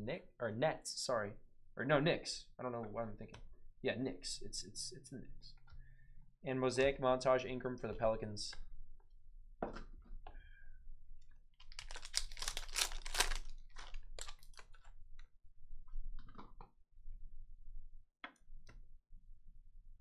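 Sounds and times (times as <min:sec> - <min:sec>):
foil wrapper crinkling and tearing: 0:11.6 - 0:14.9.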